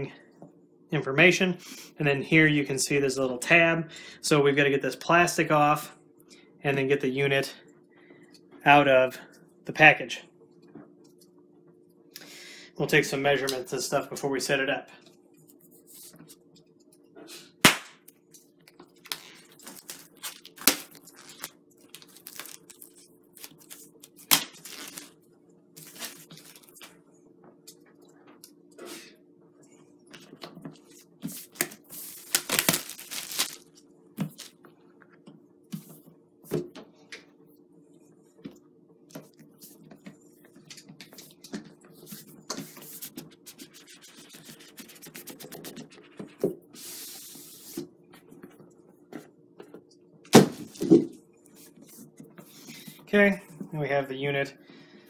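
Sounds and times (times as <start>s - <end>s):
plastic wrap crinkling and tearing: 19.0s - 25.2s, 31.4s - 33.7s.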